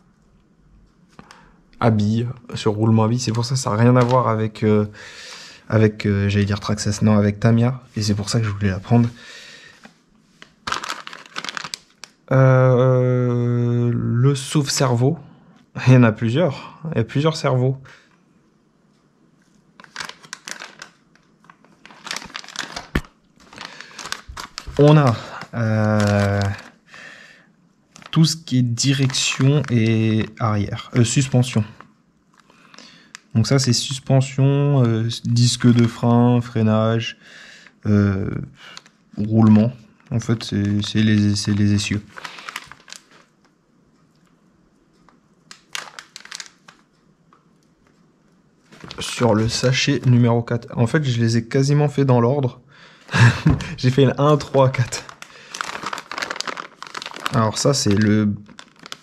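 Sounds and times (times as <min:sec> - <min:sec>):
plastic bags crinkling: 0:03.1 - 0:04.6, 0:08.0 - 0:12.3, 0:19.7 - 0:26.8, 0:27.9 - 0:33.7, 0:35.4 - 0:36.1, 0:38.7 - 0:43.5, 0:45.5 - 0:47.0, 0:48.7 - 0:50.1, 0:53.0 - 0:59.0.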